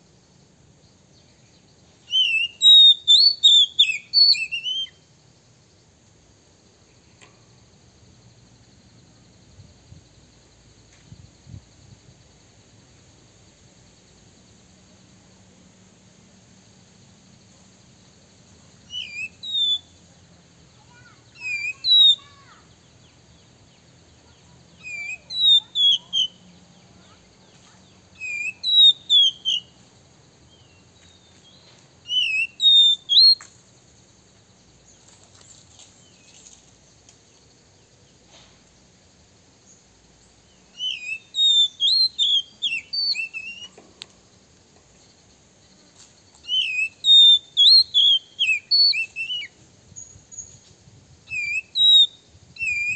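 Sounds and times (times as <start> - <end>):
faint high hiss: 0.0 - 52.9
bird whistled calls: 2.0 - 5.0, 18.9 - 19.9, 20.9 - 22.6, 24.8 - 26.5, 28.2 - 29.8, 32.0 - 33.4, 40.7 - 43.8, 46.4 - 50.6, 51.3 - 52.9.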